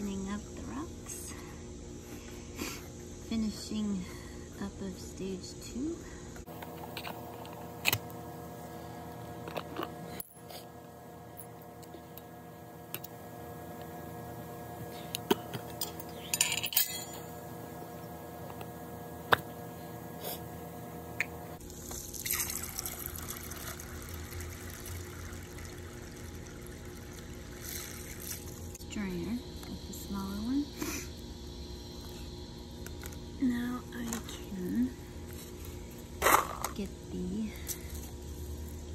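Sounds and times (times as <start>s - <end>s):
steady hum: 0.0s - 38.9s
water pouring onto rocks: 22.1s - 28.6s.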